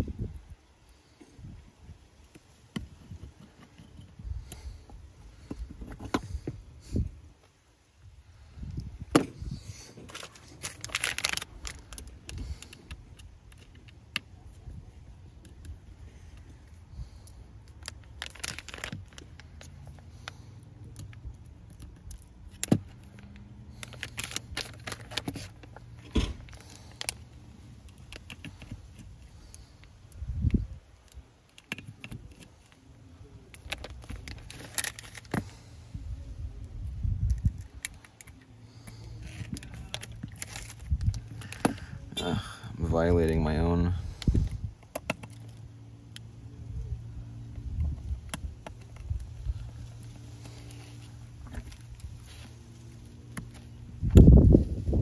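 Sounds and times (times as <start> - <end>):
low steady hum: 0.0 - 55.0.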